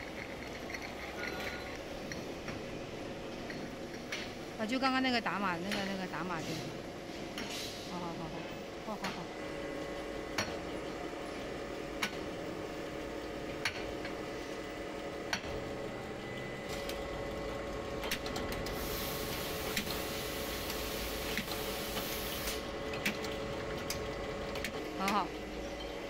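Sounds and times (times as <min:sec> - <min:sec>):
glass bottles clinking: 0:00.0 - 0:02.2
machine hum: 0:00.0 - 0:26.0
hiss: 0:18.7 - 0:22.6.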